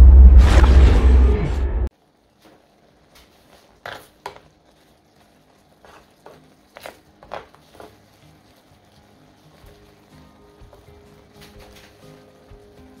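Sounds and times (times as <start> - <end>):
spatula tapping and scraping pan: 3.8 - 4.5.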